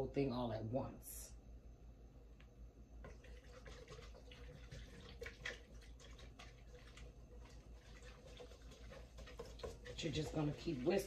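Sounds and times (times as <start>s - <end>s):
whisk scraping a pot: 3.0s - 11.0s.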